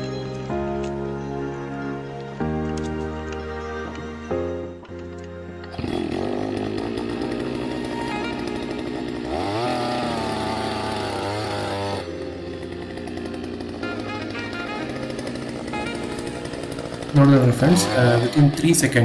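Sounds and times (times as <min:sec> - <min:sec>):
earth auger engine running: 0:02.1 - 0:19.0.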